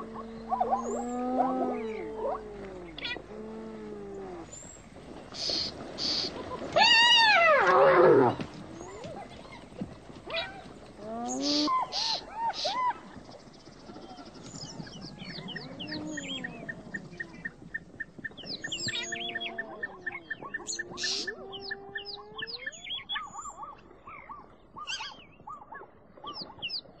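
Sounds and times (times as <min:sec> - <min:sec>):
birds chirping: 0:00.0 - 0:27.0
animal call falling in pitch: 0:06.7 - 0:09.2.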